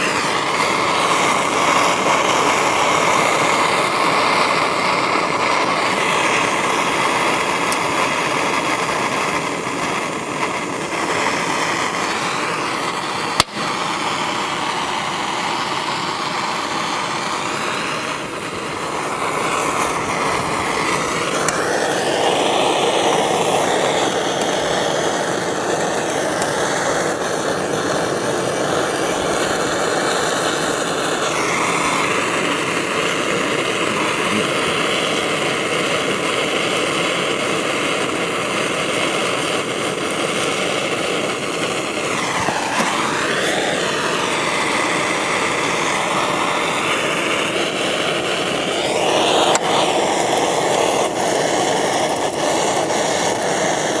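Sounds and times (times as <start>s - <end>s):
propane torch hissing: 0.0s - 54.0s
sharp pop: 13.3s - 13.8s.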